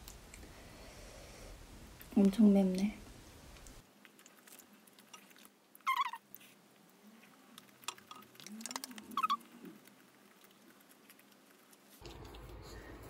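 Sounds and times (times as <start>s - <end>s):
dog whining in high squeaks: 5.9s - 6.2s, 9.2s - 9.4s.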